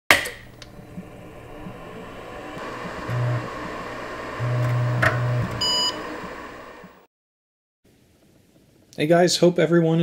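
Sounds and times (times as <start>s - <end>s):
computer fan and drives whirring: 0.2s - 7.1s
low mechanical buzzes: 0.3s - 7.1s.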